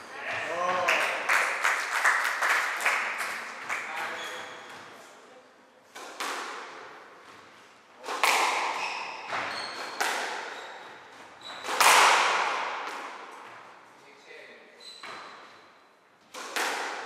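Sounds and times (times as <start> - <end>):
shoe squeaks: 4.0 - 5.0, 8.7 - 11.8, 14.8 - 15.8
ball hitting walls: 5.9 - 13.7, 16.2 - 17.0
racket striking squash ball: 5.9 - 13.7, 16.2 - 17.0.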